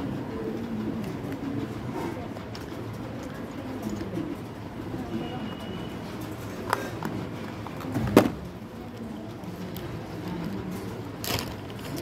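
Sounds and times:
plastic parts clicking and knocking: 11.2 - 12.0.

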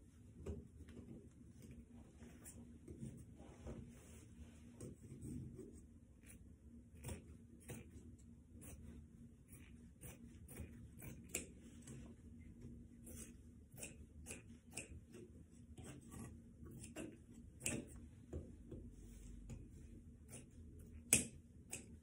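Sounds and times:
scissors snipping paper: 6.2 - 8.0, 9.5 - 12.0, 12.7 - 18.0, 19.5 - 22.0.

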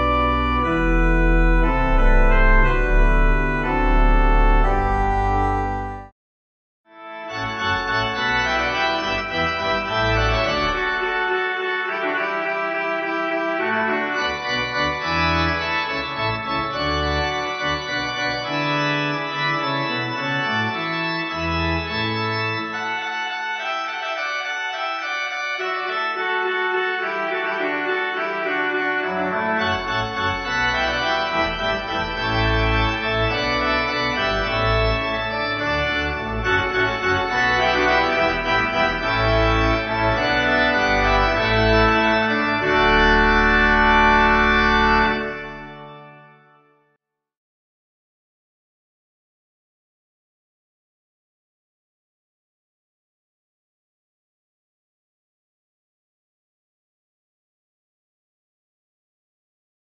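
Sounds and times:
deep organ pedal bass: 0.0 - 6.1, 7.2 - 23.2, 24.0 - 46.4
pipe organ chords: 0.0 - 6.2, 7.0 - 46.8.

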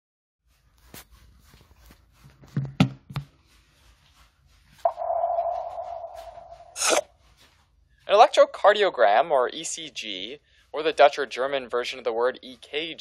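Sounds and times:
buzzy hum: 4.9 - 7.0.

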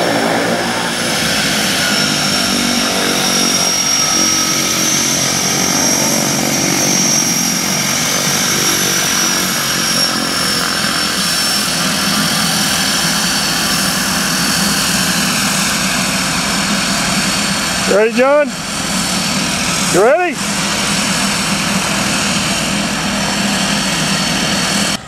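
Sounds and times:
propeller drone: 0.0 - 25.0
turbine whine: 0.0 - 25.0.

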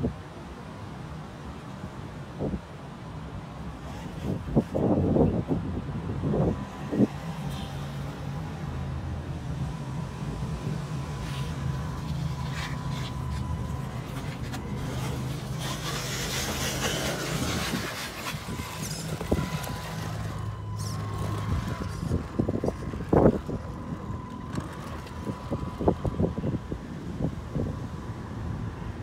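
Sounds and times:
small electric motor and gears: 11.0 - 26.6
tyres scrabbling over dirt: 11.3 - 26.2.

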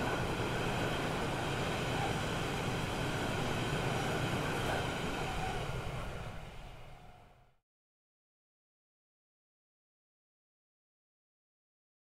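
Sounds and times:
passenger train running past: 0.0 - 7.6.

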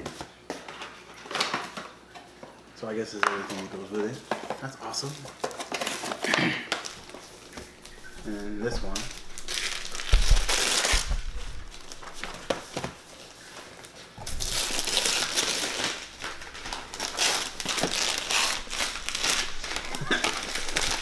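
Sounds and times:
wrapping paper tearing and rustling: 4.1 - 21.0.

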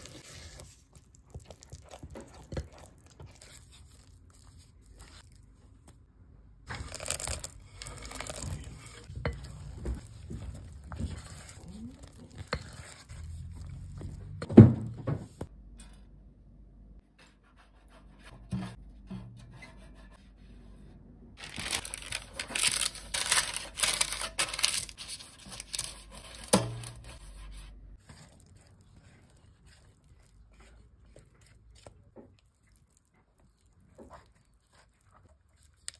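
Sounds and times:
spatula stirring batter in bowl: 0.0 - 5.6, 6.6 - 14.5, 21.6 - 35.9
parchment paper crinkling: 6.7 - 14.4, 21.4 - 27.2
pastry brush rubbing metal pan: 6.7 - 14.4.

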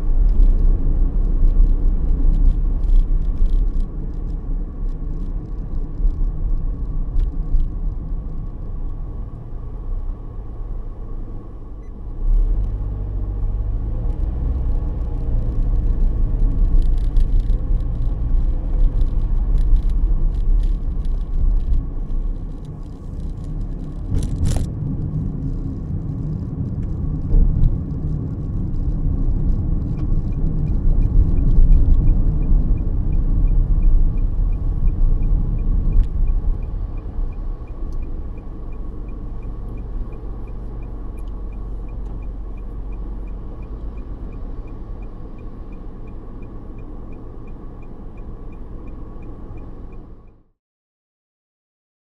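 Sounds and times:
car engine and road rumble: 0.0 - 50.6
light ticking: 28.0 - 50.4.

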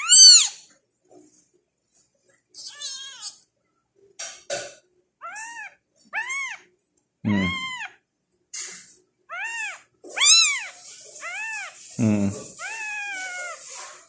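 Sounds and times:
kittens mewing: 5.2 - 6.6, 7.3 - 8.0, 9.3 - 13.7.

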